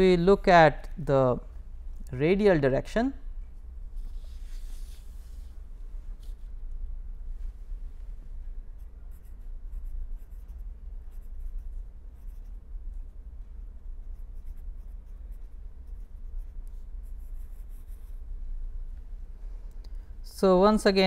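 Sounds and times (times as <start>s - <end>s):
steady low hum: 0.0s - 21.0s
pen scratching on paper: 8.8s - 18.2s.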